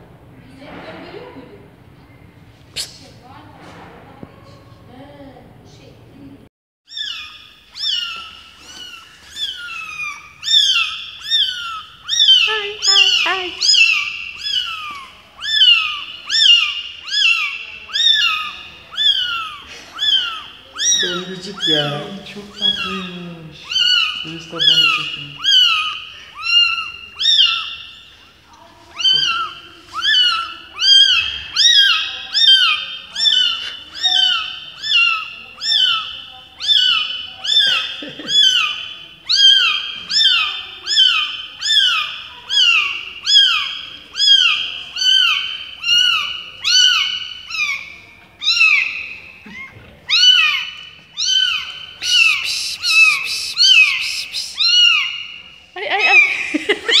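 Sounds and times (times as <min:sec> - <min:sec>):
newborn kitten mewing: 0:06.9 - 0:22.0, 0:22.6 - 0:27.7, 0:28.9 - 0:36.0, 0:51.2 - 0:55.1.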